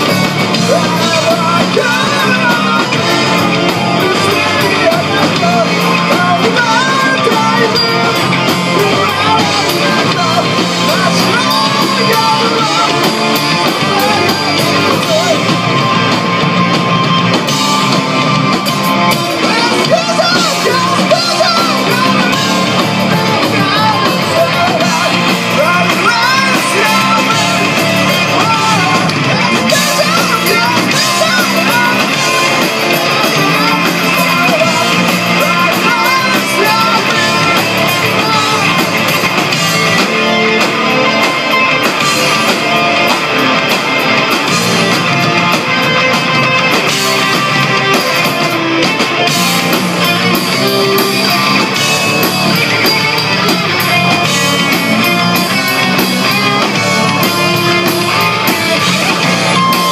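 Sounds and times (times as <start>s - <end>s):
man singing: 0.0s - 15.8s, 19.2s - 39.2s
drum kit: 0.0s - 59.9s
electric bass: 0.0s - 59.9s
electric guitars: 0.0s - 59.9s.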